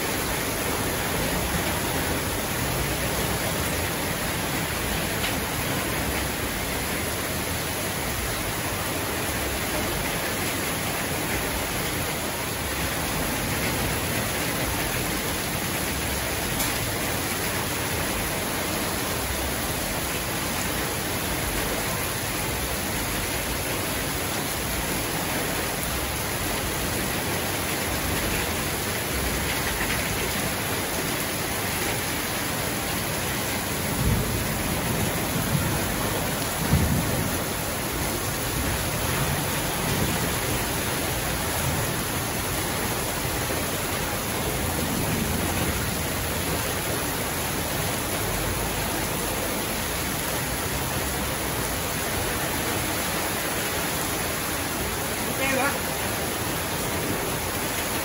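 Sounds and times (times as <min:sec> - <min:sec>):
heavy rain pouring: 0:00.0 - 0:58.0
low thunder rumbles: 0:33.8 - 0:40.6.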